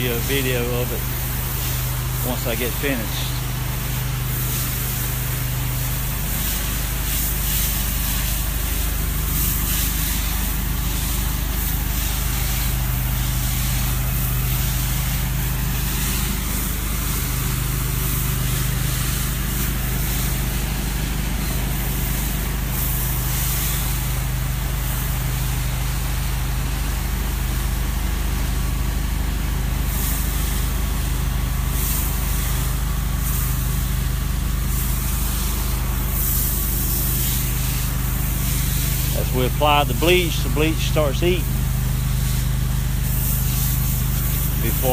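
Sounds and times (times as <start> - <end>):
spray wand hissing: 0.2 - 25.6, 29.9 - 30.8, 31.8 - 34.0, 34.6 - 44.9
low engine drone: 34.2 - 44.9.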